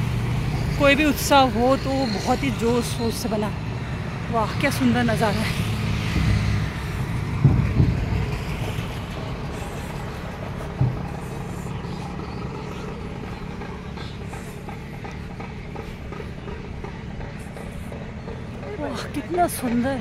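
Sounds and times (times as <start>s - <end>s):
highway traffic noise: 0.0s - 20.0s
dull thumps: 6.1s - 19.2s.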